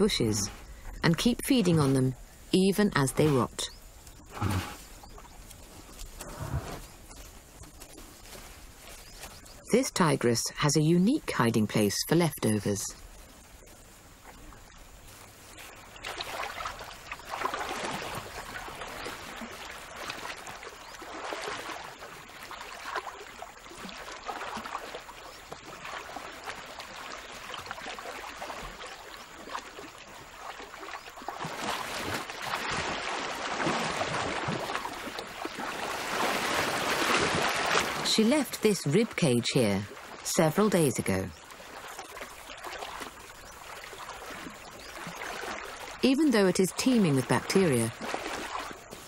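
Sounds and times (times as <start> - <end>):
water sloshing and splashing: 0.0 - 9.7, 12.8 - 49.0.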